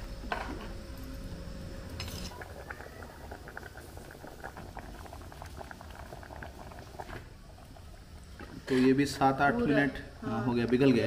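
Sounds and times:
curry bubbles popping: 2.3 - 8.7.

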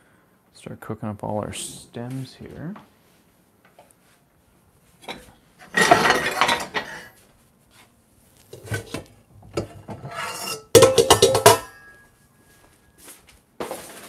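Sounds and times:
metal pots and pans scraping: 5.0 - 7.2, 8.5 - 12.0
sharp metallic clanks: 10.1 - 12.0
light knocks on pans: 10.8 - 11.7.

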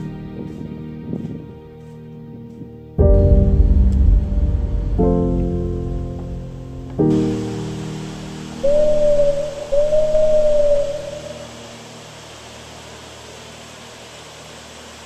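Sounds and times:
music chord: 0.0 - 14.0
steady hiss: 0.0 - 15.0
smooth whistle-like tones: 7.4 - 12.1.

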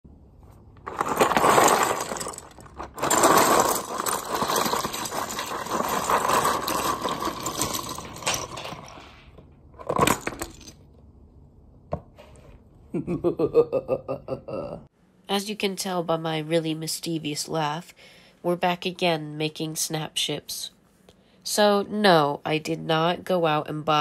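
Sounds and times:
plastic parts clattering on table: 0.8 - 10.8.

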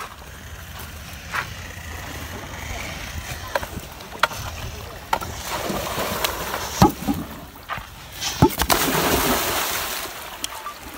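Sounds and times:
water splashing: 5.3 - 10.9.

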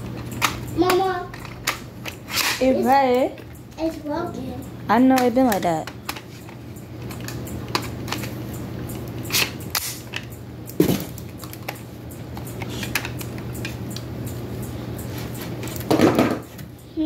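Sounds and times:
plastic toy gun clicks and knocks: 5.1 - 6.3.

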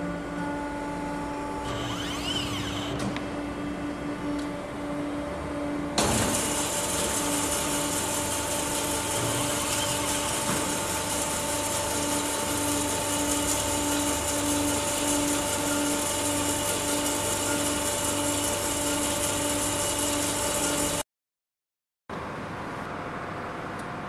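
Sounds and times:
band saw humming and hissing: 0.7 - 3.6, 6.1 - 21.0.

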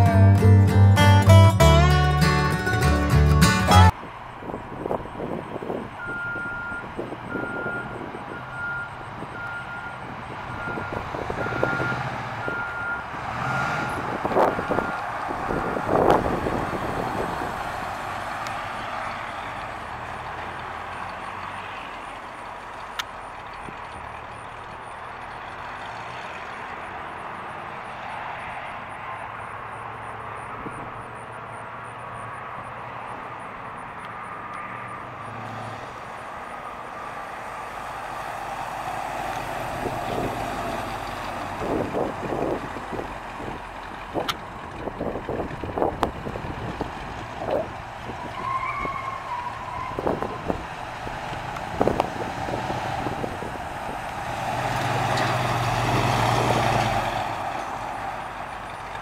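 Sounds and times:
reversing alarm beeping: 5.0 - 15.0
pickup truck engine driving past: 5.7 - 30.7, 34.4 - 59.0.

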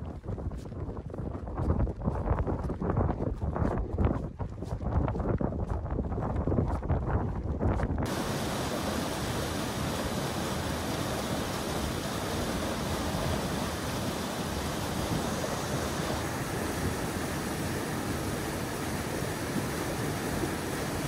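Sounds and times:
wind buffeting microphone: 0.0 - 21.0
fast river rushing through rocks: 8.1 - 21.0.

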